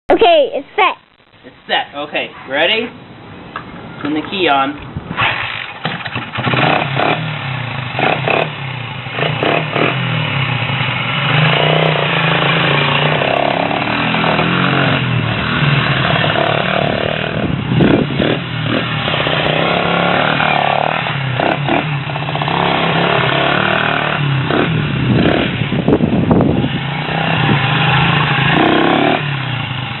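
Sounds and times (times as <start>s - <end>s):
motorcycle engine revving: 4.9s - 30.0s.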